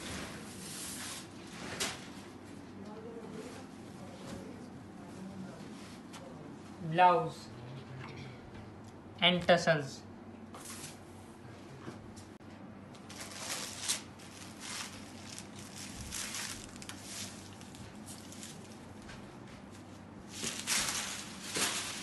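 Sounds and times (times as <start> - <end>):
fabric rustling: 13.1 - 18.7.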